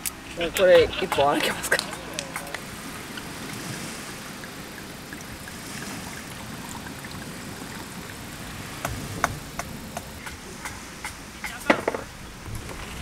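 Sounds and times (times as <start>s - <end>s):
wine pouring over ice: 1.4s - 10.2s.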